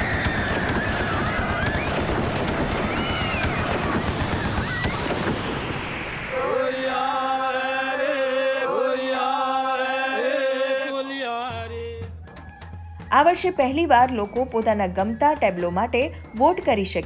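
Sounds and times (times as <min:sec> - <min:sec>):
dense crackling noise: 0:00.0 - 0:07.3.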